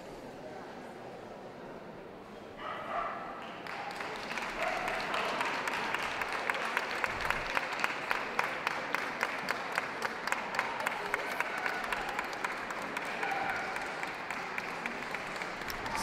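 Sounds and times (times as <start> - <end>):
audience applauding: 3.4 - 16.0.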